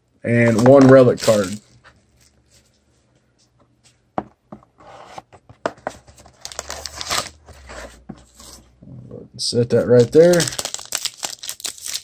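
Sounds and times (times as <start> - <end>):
plastic wrapping crinkling and tearing: 0.5 - 2.4, 6.3 - 7.4, 9.8 - 12.0.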